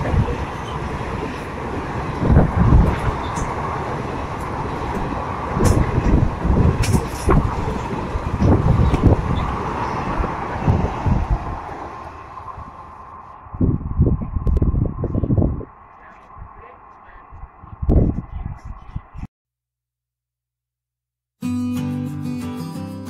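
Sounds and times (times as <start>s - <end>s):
wheels clunking over rail joints: 0.0s - 13.4s
train rolling rumble: 0.0s - 19.3s.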